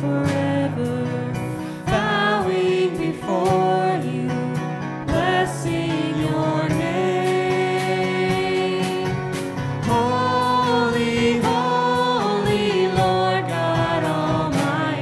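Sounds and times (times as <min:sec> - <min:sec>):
instrumental accompaniment: 0:00.0 - 0:15.0
voices singing a worship song: 0:00.0 - 0:15.0.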